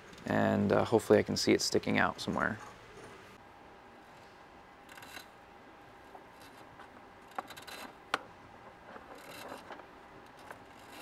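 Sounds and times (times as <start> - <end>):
faint rustling and scraping: 6.0 - 11.0.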